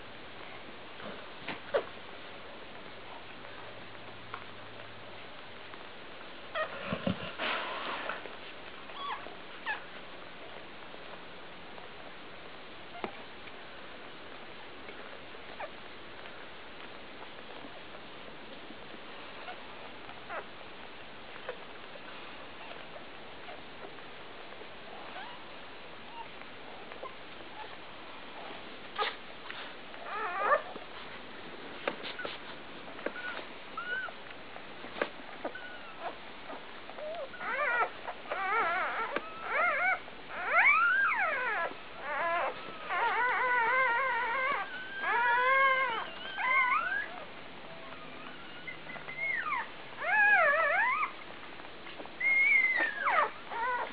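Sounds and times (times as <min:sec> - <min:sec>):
puppies crying and squeaking: 0:06.5 - 0:06.8, 0:08.6 - 0:09.9, 0:20.2 - 0:20.5, 0:28.9 - 0:30.8, 0:31.9 - 0:34.2, 0:34.9 - 0:53.9.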